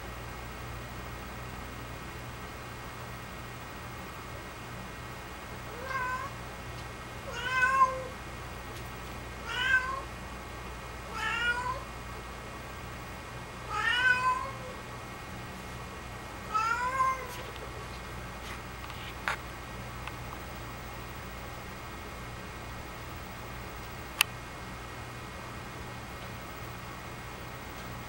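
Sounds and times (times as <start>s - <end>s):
cat meowing: 5.7s - 6.4s, 7.3s - 8.1s, 9.4s - 10.1s, 11.1s - 11.9s, 13.7s - 14.8s, 16.5s - 17.4s.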